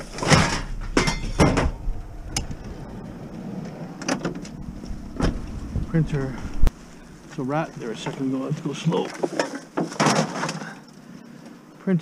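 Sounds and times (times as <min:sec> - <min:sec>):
bicycle clattering against cargo: 0:08.0 - 0:10.9.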